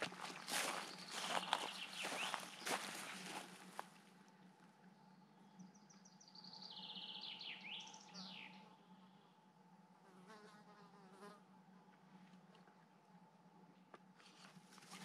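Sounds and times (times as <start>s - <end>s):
steady low hum: 0.0s - 15.0s
songbird trilling: 0.5s - 2.9s.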